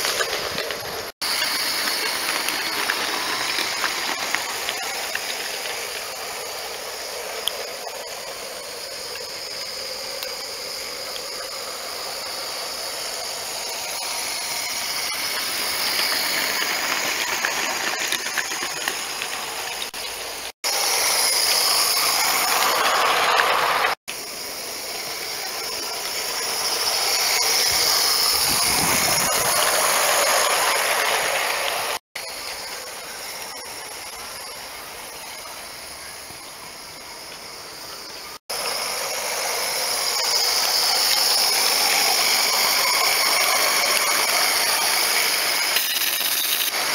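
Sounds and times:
wagon wheels clattering on track: 0:00.0 - 0:06.4, 0:15.0 - 0:20.0
model steam tram hissing: 0:00.0 - 0:46.9.

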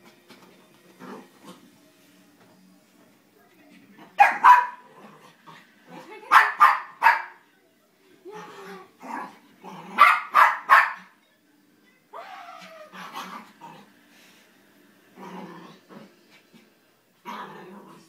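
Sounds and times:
puppy barking and yipping: 0:04.2 - 0:04.8, 0:10.0 - 0:11.1.

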